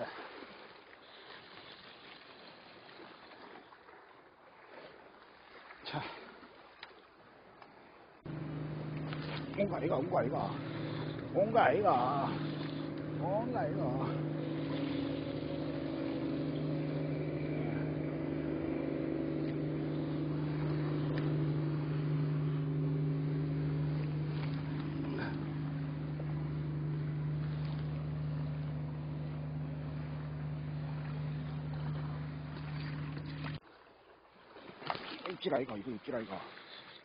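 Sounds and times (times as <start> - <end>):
boat engine running: 8.2 - 33.6.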